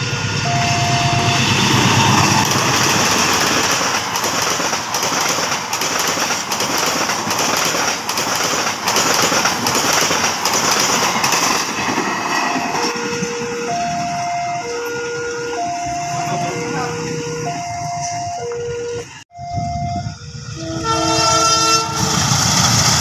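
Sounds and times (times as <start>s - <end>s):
train horn blast: 0.0s - 2.6s, 12.6s - 22.6s
locomotive engines rumbling: 0.0s - 23.0s
train coaches roaring: 0.0s - 23.0s
wheels clacking over rail joints: 1.6s - 13.6s.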